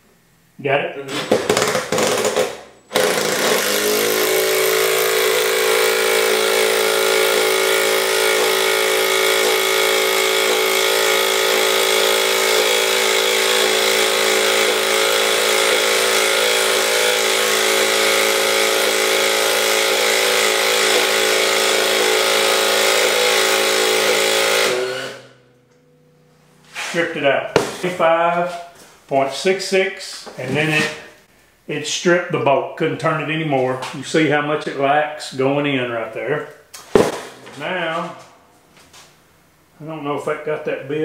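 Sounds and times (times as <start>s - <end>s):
impact driver hammering: 1.2s - 25.3s, 36.9s - 37.4s.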